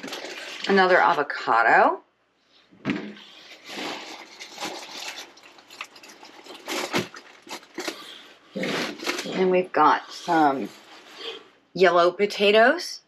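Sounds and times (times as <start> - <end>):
rustling produce and packaging: 0.0 - 1.3, 3.2 - 11.6.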